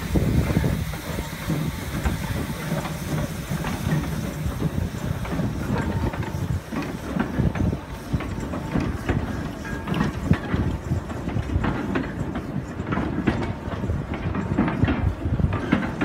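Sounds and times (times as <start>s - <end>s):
steam locomotive exhaust beats: 0.0s - 16.0s
wagons rattling over track: 0.0s - 16.0s.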